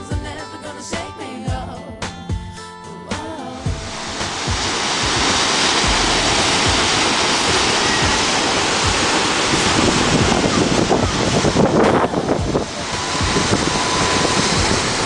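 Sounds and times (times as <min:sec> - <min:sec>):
waterfall roaring: 0:03.7 - 0:15.0
wind buffeting microphone: 0:03.7 - 0:15.0.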